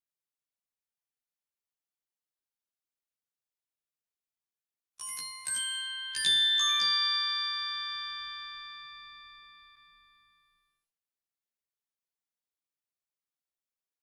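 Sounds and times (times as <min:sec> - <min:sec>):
bell-like mallet chime notes: 0:05.0 - 0:10.8.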